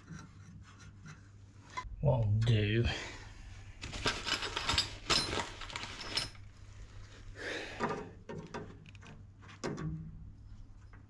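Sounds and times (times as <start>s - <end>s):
hand scraping metal pipework: 0.0s - 1.9s.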